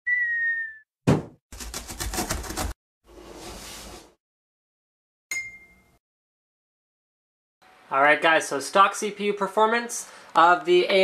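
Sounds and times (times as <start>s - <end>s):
falling whistle: 0.0s - 0.9s
bright ding: 5.3s - 6.0s.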